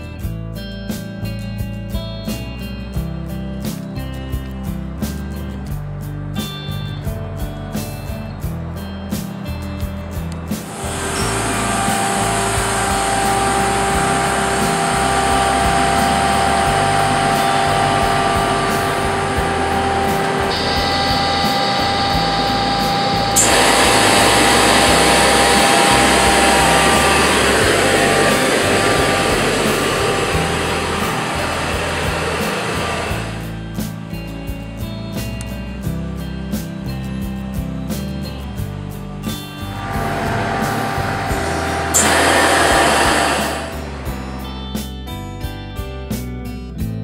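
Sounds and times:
machine hum and whine: 10.3 - 34.3, 38.2 - 44.9
rushing hiss: 10.6 - 33.6, 39.6 - 44.2.

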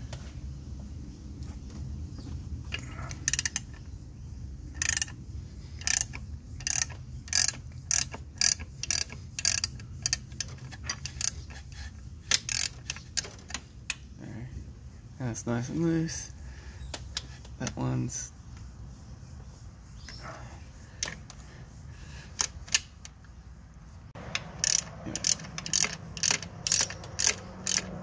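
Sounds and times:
ratchet wrench clicking: 3.1 - 3.9, 4.7 - 14.1, 22.3 - 23.3, 24.2 - 28.0.

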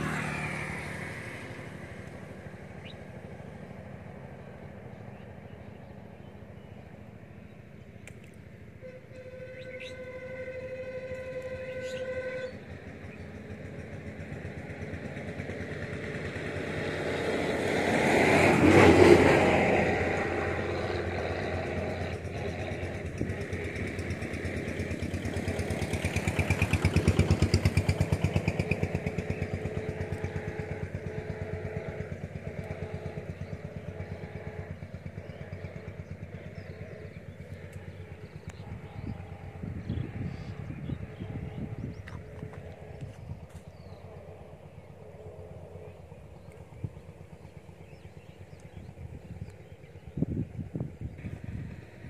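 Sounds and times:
vehicles passing on road: 0.0 - 52.0
car horn: 8.8 - 12.7.

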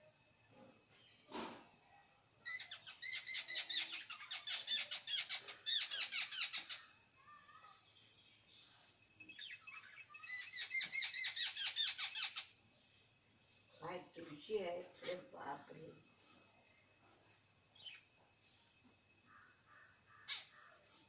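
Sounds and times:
bird chattering: 2.5 - 6.9, 9.4 - 12.5.

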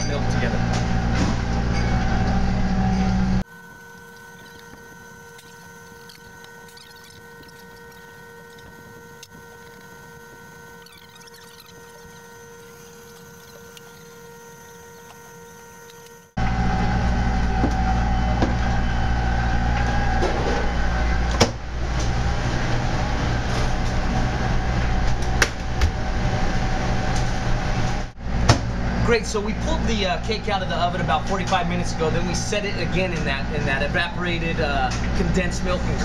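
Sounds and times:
kitchen machinery hum: 0.0 - 36.0
ventilation rumble: 16.4 - 36.0.

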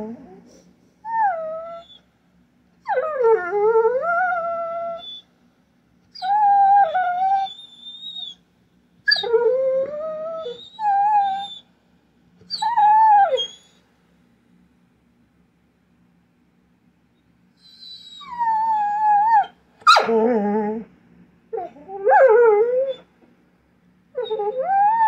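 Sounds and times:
dog whining: 0.0 - 2.1, 2.8 - 5.3, 6.1 - 8.4, 9.1 - 11.7, 12.4 - 13.8, 17.6 - 20.9, 21.5 - 23.1, 24.2 - 25.0.

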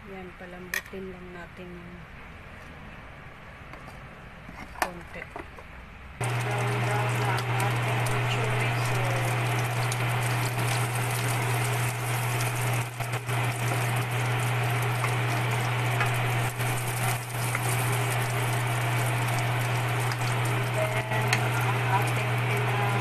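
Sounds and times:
low hum: 6.2 - 23.0
meat sizzling in a frying pan: 6.2 - 23.0
spatula moving food: 6.2 - 23.0.

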